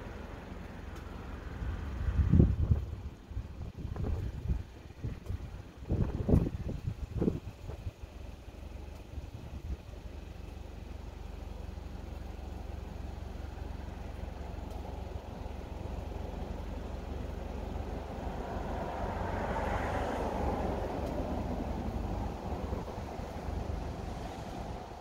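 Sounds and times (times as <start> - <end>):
passing vehicle: 0.0 - 25.0
wind on microphone: 2.1 - 7.9.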